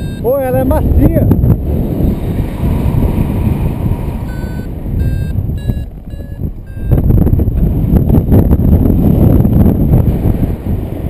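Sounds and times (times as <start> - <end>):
variometer beeping short tones: 0.0 - 0.8, 4.2 - 7.2
wind rushing over microphone: 0.0 - 11.0.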